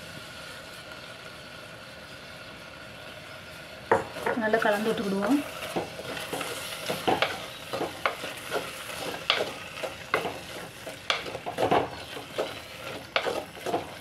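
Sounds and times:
sizzling hiss: 0:00.0 - 0:14.0
wooden spatula scraping clay pot: 0:04.2 - 0:14.0.

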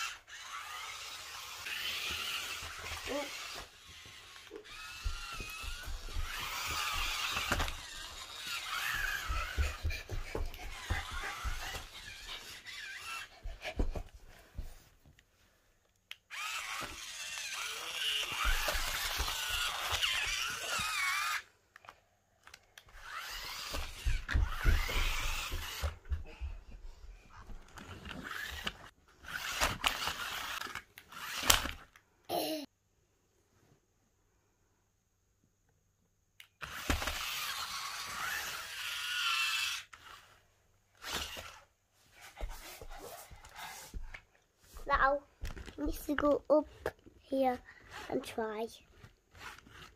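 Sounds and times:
electric toy car motor whining: 0:00.0 - 0:14.0, 0:16.3 - 0:21.5, 0:22.4 - 0:26.1, 0:27.5 - 0:31.9, 0:36.6 - 0:40.3, 0:41.0 - 0:41.7, 0:47.8 - 0:48.2, 0:49.0 - 0:49.9.

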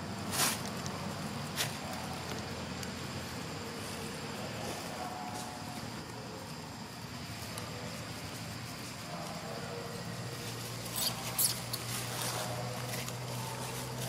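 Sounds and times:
baby monkey squealing: 0:10.9 - 0:11.8.

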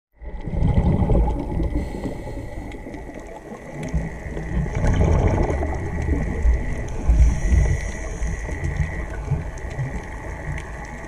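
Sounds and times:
faint crackling clicks: 0:00.2 - 0:11.0
underwater water surges: 0:00.2 - 0:11.0.

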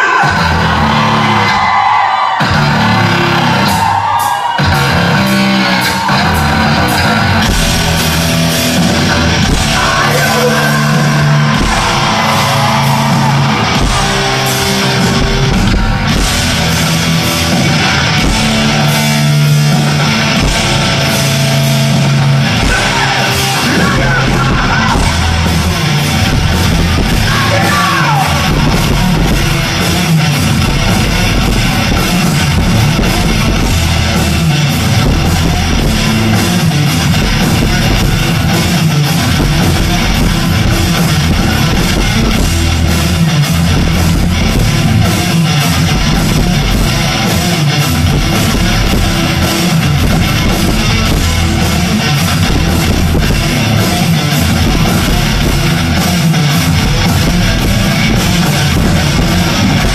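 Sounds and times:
bass guitar: 0:00.0 - 0:59.9
drums: 0:00.0 - 0:59.9
electric guitar: 0:00.1 - 0:59.9.

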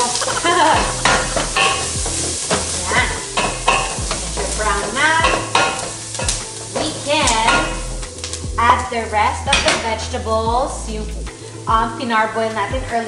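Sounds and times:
wooden spoon scraping pot: 0:00.0 - 0:07.9
vegetables sizzling in oil: 0:00.0 - 0:10.1.

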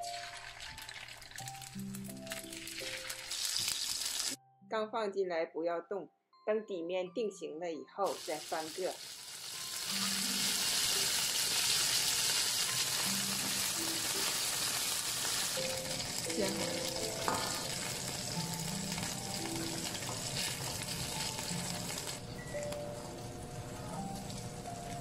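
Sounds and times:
fish sizzling in hot oil: 0:00.0 - 0:04.4, 0:08.1 - 0:22.6.

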